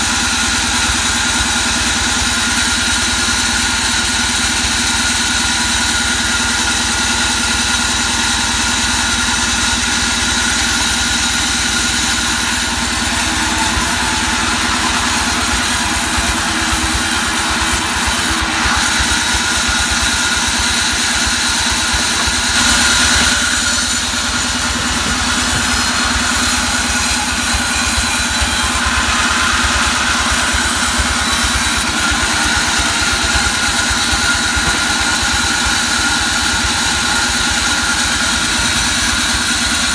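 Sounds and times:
band saw cutting wood: 0:00.0 - 0:39.9.

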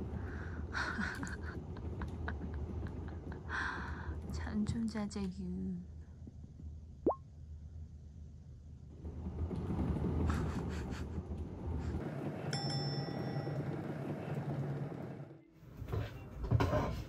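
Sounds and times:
cat wheel rolling: 0:00.0 - 0:05.2, 0:08.9 - 0:17.0.

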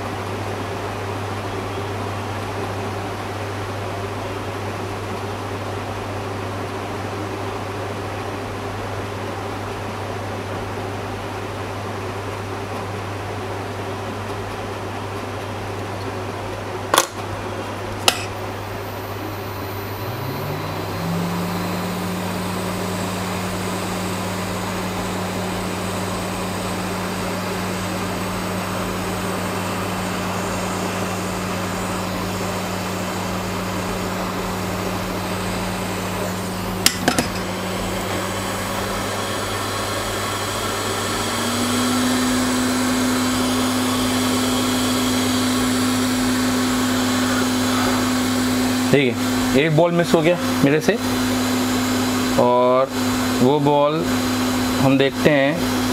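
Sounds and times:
hot air gun blower whirring: 0:16.9 - 0:55.9.

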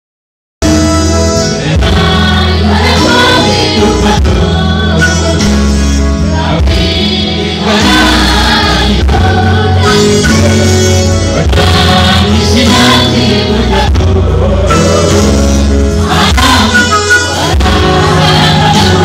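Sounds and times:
instrumental accompaniment: 0:00.6 - 0:19.0
mixed choir singing: 0:01.4 - 0:19.0.

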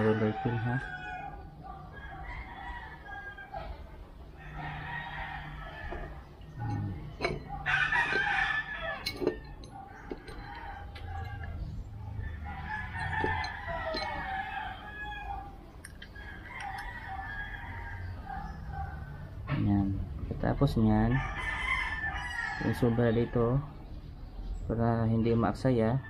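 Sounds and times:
rooster crowing: 0:00.0 - 0:19.3, 0:21.0 - 0:23.7
clicks and taps of metal parts: 0:05.9 - 0:08.4, 0:09.0 - 0:11.6, 0:12.8 - 0:14.2, 0:15.8 - 0:16.9.

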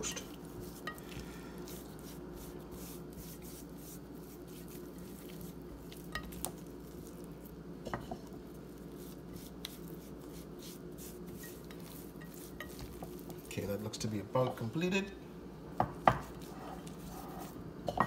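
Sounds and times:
low room hum: 0:00.0 - 0:18.0
hands rubbing raw meat: 0:00.3 - 0:07.6, 0:08.3 - 0:13.8, 0:16.2 - 0:17.6.

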